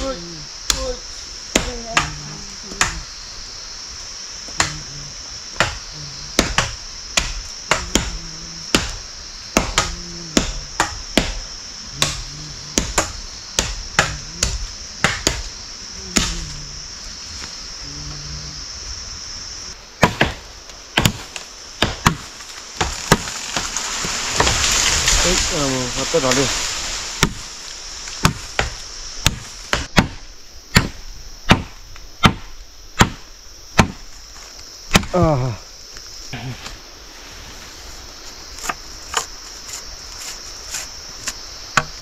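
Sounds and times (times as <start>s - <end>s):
wood chopping strokes: 4.5s - 16.7s, 20.0s - 35.3s, 38.2s - 42.0s.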